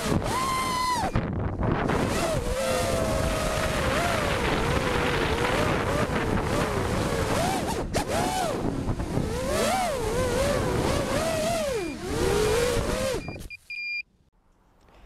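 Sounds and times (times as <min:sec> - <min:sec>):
drone motors whining: 0:00.0 - 0:13.5
wind rushing over microphone: 0:00.0 - 0:13.5
short high beeps: 0:13.2 - 0:14.0.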